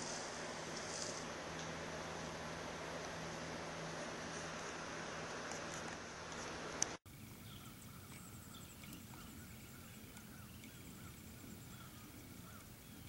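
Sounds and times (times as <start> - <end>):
rustling hiss: 0.0 - 13.0
bird chirps: 7.2 - 13.0.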